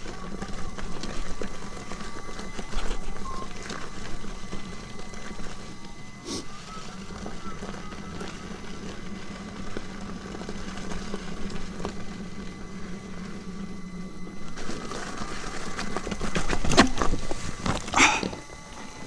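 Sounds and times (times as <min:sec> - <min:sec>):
electric motor humming: 0:00.0 - 0:19.0
tyre crunching over gravel: 0:00.0 - 0:19.0
rocks knocking under tyre: 0:14.2 - 0:18.4.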